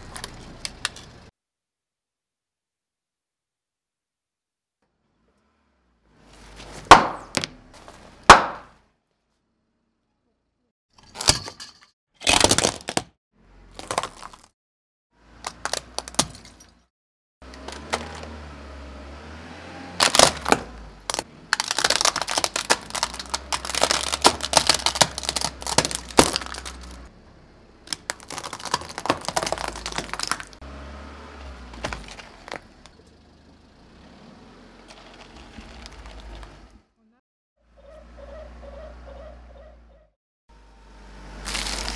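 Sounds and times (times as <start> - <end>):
toys crunching: 0.0 - 1.3, 11.0 - 14.5, 15.4 - 16.6, 17.4 - 18.4, 20.0 - 27.1, 27.9 - 30.6, 31.4 - 33.1, 34.8 - 36.8, 41.4 - 41.9
loud sharp pops: 8.3 - 8.7
plastic cracking and snapping: 20.0 - 27.0, 27.9 - 30.6.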